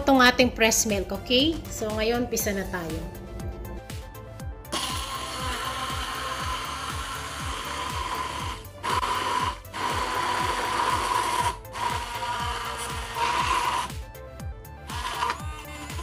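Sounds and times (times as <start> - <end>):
immersion blender motor whine: 4.7 - 14.0, 14.8 - 16.0.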